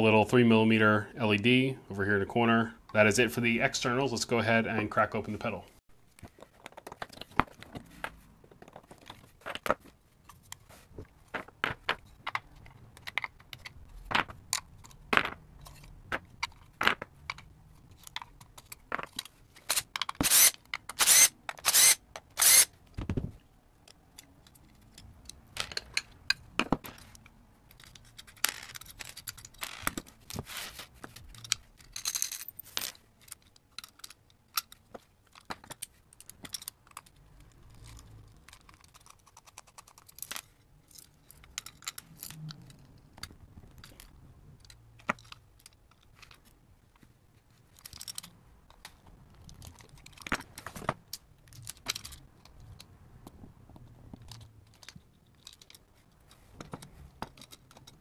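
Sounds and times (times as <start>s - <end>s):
circuit board handling rustles: 26.6s - 52.9s
screws and washers clinking: 27.0s - 42.8s.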